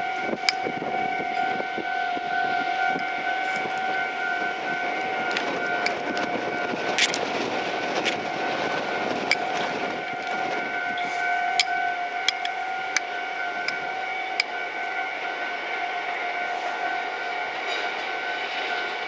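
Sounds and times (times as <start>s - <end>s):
level crossing alarm ringing: 0.0s - 19.0s
rumbling noise: 2.4s - 13.9s.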